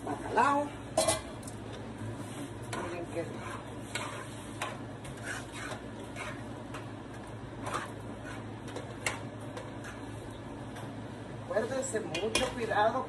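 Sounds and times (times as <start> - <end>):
low steady hum: 0.0 - 13.0
spoon stirring in metal pot: 2.2 - 10.8.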